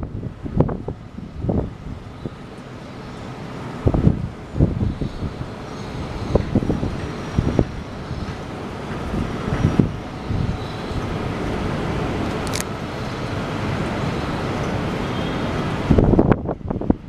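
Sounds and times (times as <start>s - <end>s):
city traffic hum: 0.0s - 17.0s
wind buffeting microphone: 0.0s - 17.0s.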